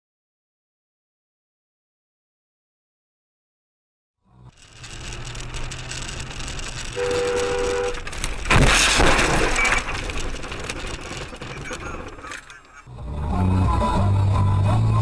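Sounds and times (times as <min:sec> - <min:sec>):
car road noise: 0:04.2 - 0:15.0
two-note car horn: 0:07.0 - 0:08.0.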